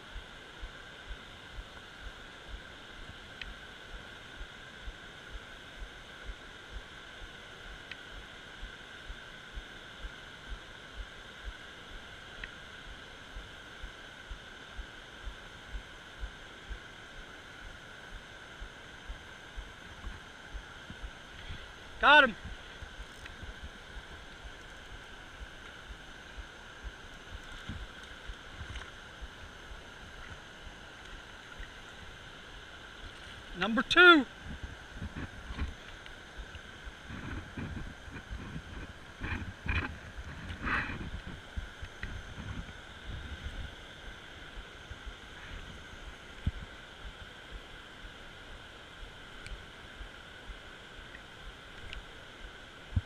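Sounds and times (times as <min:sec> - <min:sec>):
wind thumps on microphone: 0:34.4 - 0:35.8, 0:36.4 - 0:43.8.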